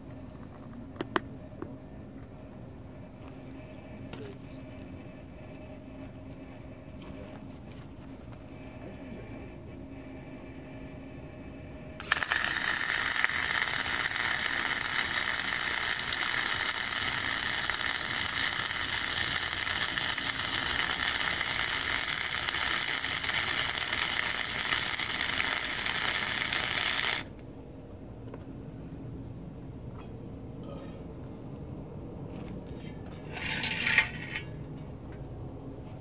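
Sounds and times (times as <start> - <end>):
welding arc crackling: 12.0 - 27.3.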